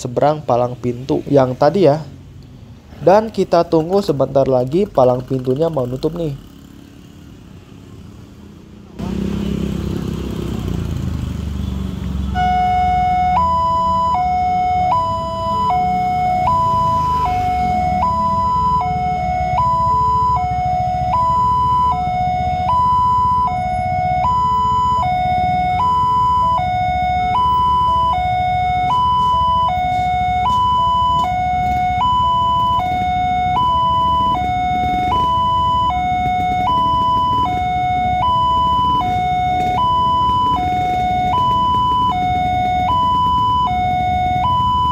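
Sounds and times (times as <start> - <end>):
road traffic: 0.0 - 44.9
motorcycle: 3.8 - 44.9
two-tone level crossing alarm: 12.3 - 44.9.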